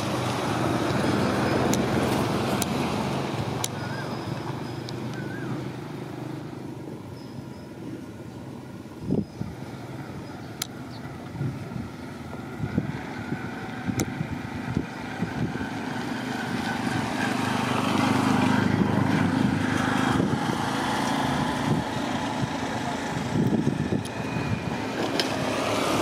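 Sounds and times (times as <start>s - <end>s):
motor engine running: 7.9s - 26.0s.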